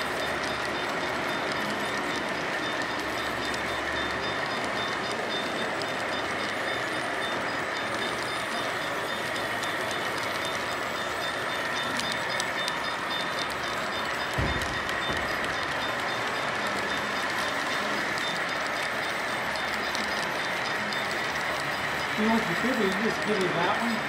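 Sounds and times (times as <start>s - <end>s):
model train cars rolling: 0.0s - 24.0s.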